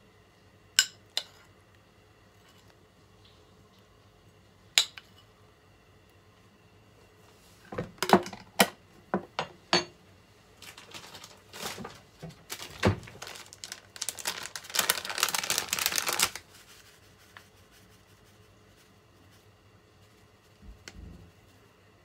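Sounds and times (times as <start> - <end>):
plastic packet crinkling: 10.6 - 16.7.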